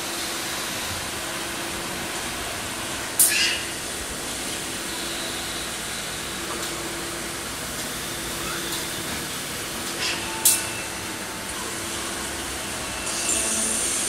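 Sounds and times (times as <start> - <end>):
sharp high-pitched hiss: 13.0 - 14.0.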